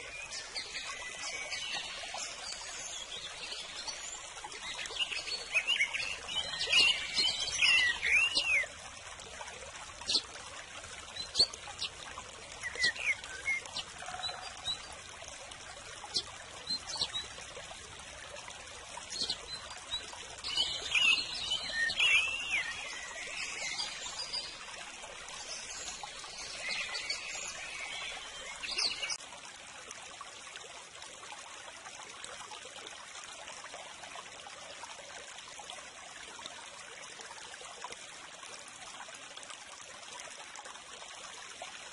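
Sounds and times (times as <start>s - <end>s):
birds chirping: 0.0s - 8.7s, 11.1s - 15.0s, 16.0s - 17.4s, 19.0s - 24.6s
trickling water: 0.0s - 41.9s.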